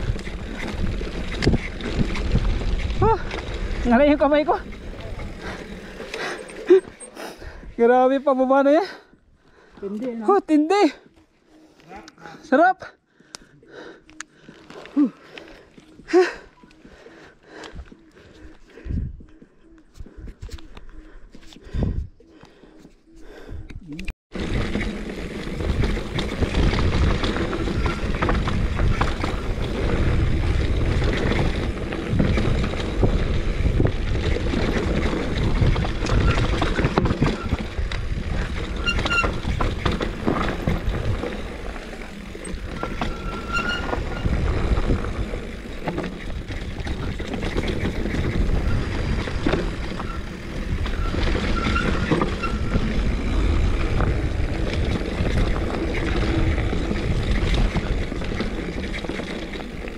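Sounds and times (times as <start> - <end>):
wind rushing over microphone: 0.0 - 6.2, 23.6 - 59.8
bike tyres rolling over dirt: 0.0 - 8.6, 24.3 - 59.9
bike clattering over roots: 24.4 - 59.9.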